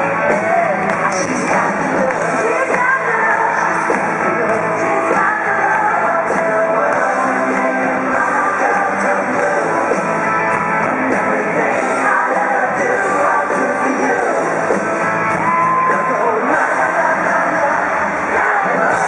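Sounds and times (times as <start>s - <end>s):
live pop-rock band: 0.0s - 19.0s
woman singing lead: 0.2s - 9.9s.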